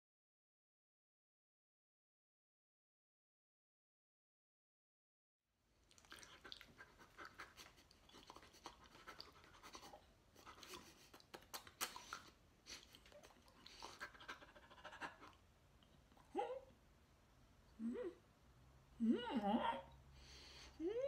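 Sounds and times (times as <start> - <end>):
mouth clicks: 11.1 - 14.2
soft breaths: 20.0 - 21.0.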